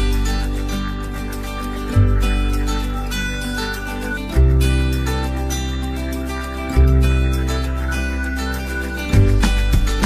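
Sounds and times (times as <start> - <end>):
gentle plucked guitar music: 0.0 - 10.0.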